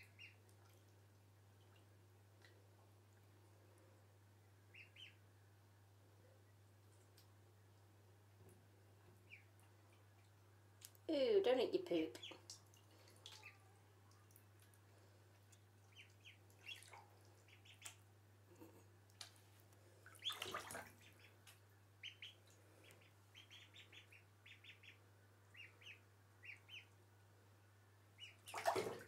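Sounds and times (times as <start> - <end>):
ducklings peeping: 0.0 - 0.4, 4.7 - 5.2, 9.2 - 10.1, 12.1 - 12.4, 15.3 - 18.1, 20.1 - 27.0, 28.1 - 28.6.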